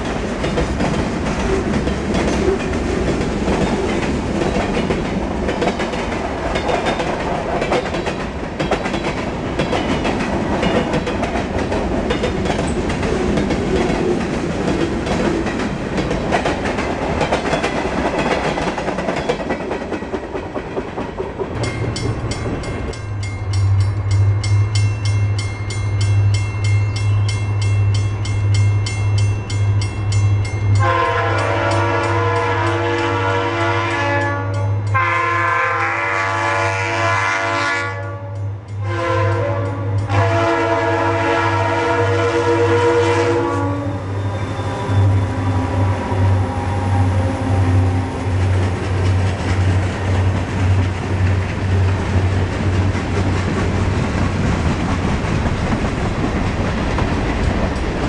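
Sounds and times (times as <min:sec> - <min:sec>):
train wheels clattering on rails: 0:00.0 - 0:33.3, 0:47.7 - 0:58.0
crossing bell ringing: 0:09.7 - 0:11.2, 0:21.6 - 0:32.9, 0:34.1 - 0:35.3.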